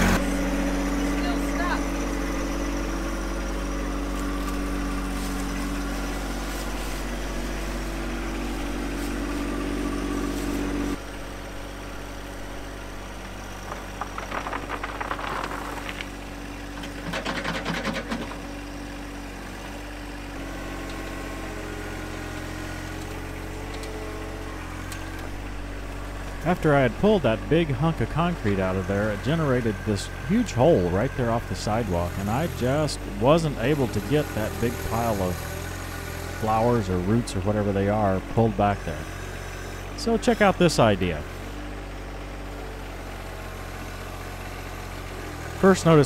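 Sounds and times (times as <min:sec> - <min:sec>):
diesel tractor engine running: 0:00.0 - 0:46.0
engine clatter bursts: 0:12.2 - 0:46.0.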